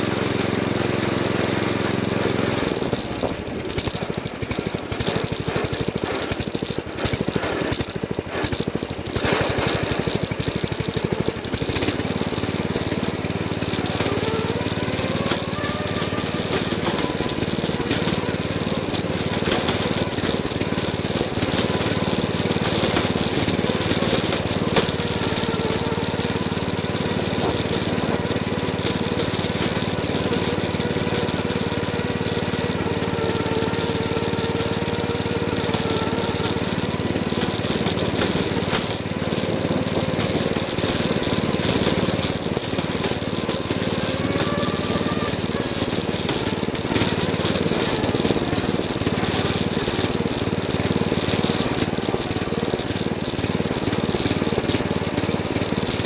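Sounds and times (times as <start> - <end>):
rapid rattling and clatter: 0.0 - 56.0
riding lawn mower engine running: 0.0 - 56.0.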